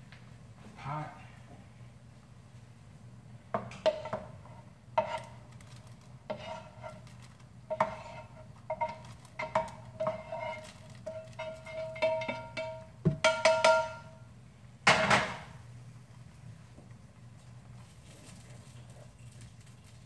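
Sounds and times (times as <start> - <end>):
utensil clinking on metal pan: 7.7 - 14.1.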